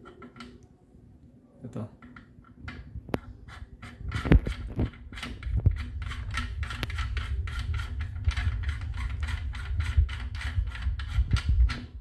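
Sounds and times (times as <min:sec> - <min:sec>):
small clicks and scrapes of screwing: 0:00.0 - 0:00.7, 0:02.0 - 0:12.0.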